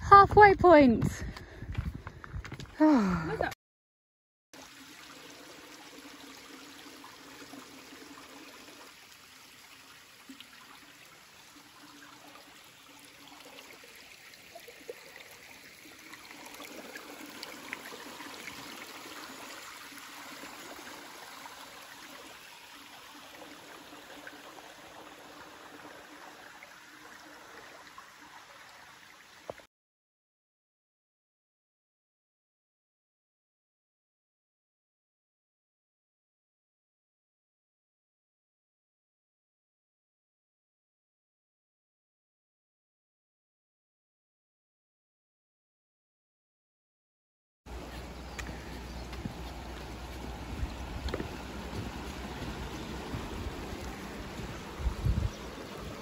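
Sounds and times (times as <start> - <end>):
stream running over stones: 4.6 - 29.7, 47.7 - 56.0.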